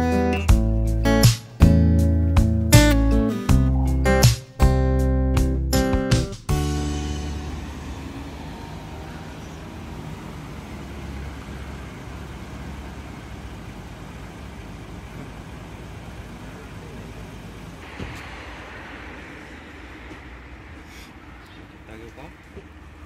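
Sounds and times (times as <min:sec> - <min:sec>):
road traffic rumble: 0:06.5 - 0:23.0.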